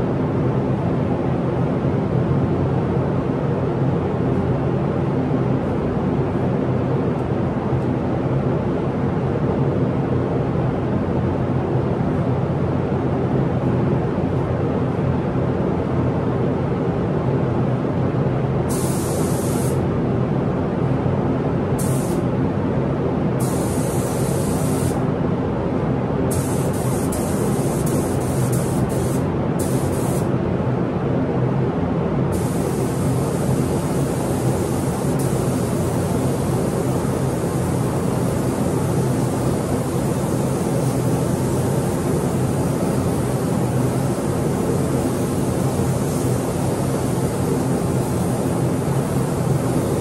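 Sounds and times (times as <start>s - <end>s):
paint booth airflow hum: 0.0s - 50.0s
spray gun hissing: 18.7s - 19.8s, 21.8s - 22.2s, 23.4s - 25.0s, 26.3s - 30.3s, 32.3s - 50.0s.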